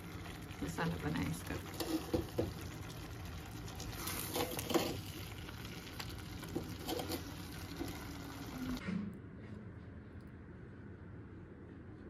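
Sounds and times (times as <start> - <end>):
spatula scraping pot: 1.6 - 2.8, 3.8 - 5.4, 6.4 - 8.6.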